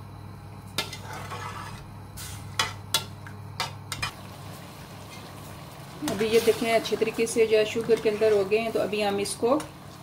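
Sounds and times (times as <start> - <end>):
steady low hum: 0.0 - 10.0
metal spoon scraping saucepan: 0.8 - 2.7.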